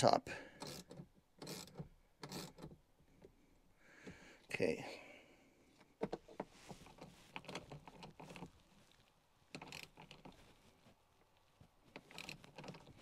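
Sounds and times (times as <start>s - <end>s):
socket ratchet clicking: 0.6s - 2.8s.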